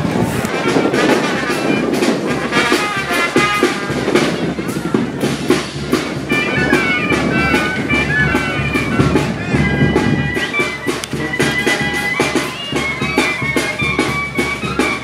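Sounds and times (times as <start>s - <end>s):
wind instruments over a beat: 0.0s - 15.0s.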